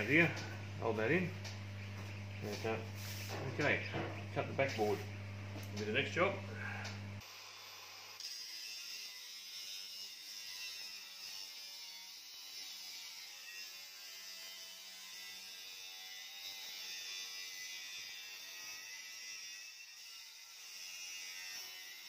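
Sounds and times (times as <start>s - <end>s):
angle grinder cutting steel: 7.2s - 22.0s.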